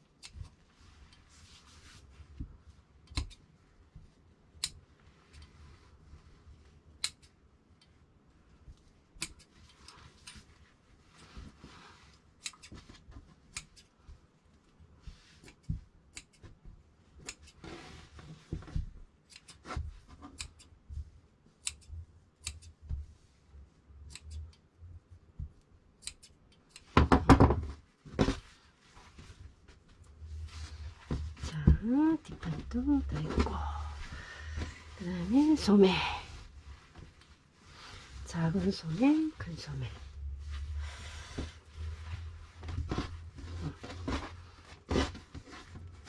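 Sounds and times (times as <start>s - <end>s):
handling noise of fabric pieces: 0.0s - 46.0s
fabric sliding and rustling: 0.4s - 2.8s, 9.5s - 15.8s, 17.6s - 19.0s, 27.8s - 46.0s
fabric shears snipping: 9.1s - 10.5s, 12.3s - 14.0s, 17.2s - 17.8s, 19.2s - 20.8s.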